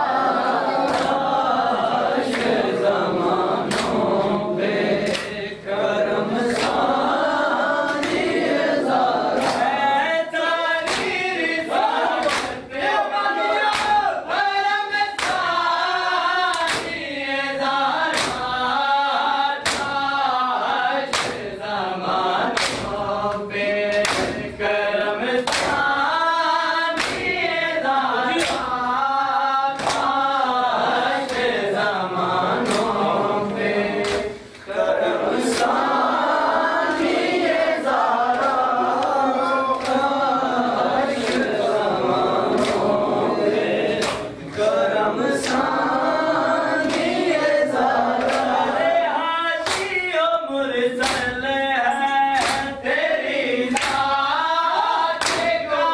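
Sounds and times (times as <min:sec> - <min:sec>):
group of men chanting a lament: 0:00.0 - 0:55.9
hands slapping bare chests: 0:00.8 - 0:01.4, 0:03.6 - 0:04.1, 0:05.0 - 0:05.4, 0:06.5 - 0:07.0, 0:07.9 - 0:08.4, 0:09.3 - 0:09.7, 0:10.8 - 0:11.2, 0:12.1 - 0:12.6, 0:13.6 - 0:14.1, 0:15.2 - 0:15.6, 0:16.5 - 0:17.0, 0:18.1 - 0:18.6, 0:19.6 - 0:20.0, 0:21.1 - 0:21.5, 0:22.6 - 0:23.0, 0:23.9 - 0:24.5, 0:25.4 - 0:25.9, 0:27.0 - 0:27.4, 0:28.3 - 0:28.8, 0:29.8 - 0:30.2, 0:32.6 - 0:33.1, 0:34.0 - 0:34.4, 0:38.3 - 0:40.1, 0:44.0 - 0:44.6, 0:46.8 - 0:47.2, 0:48.2 - 0:48.6, 0:49.6 - 0:50.0, 0:51.0 - 0:51.4, 0:52.4 - 0:52.8, 0:53.7 - 0:54.2, 0:55.2 - 0:55.6.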